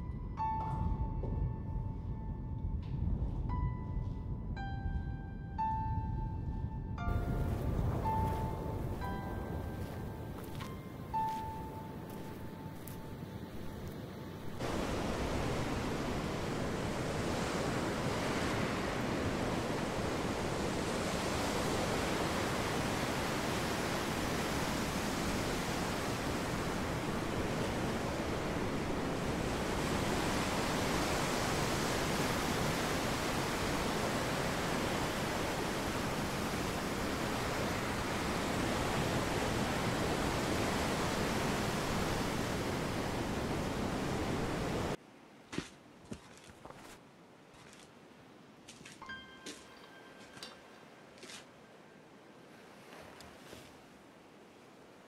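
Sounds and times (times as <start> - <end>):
wind: 0.0 - 55.0
ocean surf washing on shore: 7.1 - 45.0.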